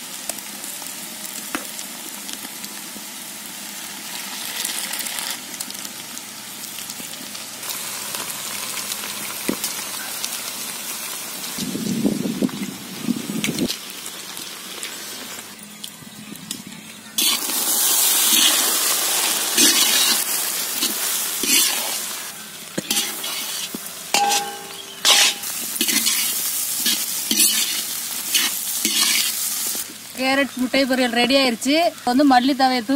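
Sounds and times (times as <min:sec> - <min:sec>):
egg frying sizzling: 0:00.0 - 0:15.6, 0:17.1 - 0:32.7
spatula scraping and clinking pan: 0:19.6 - 0:20.2, 0:20.8 - 0:22.0, 0:22.8 - 0:29.4.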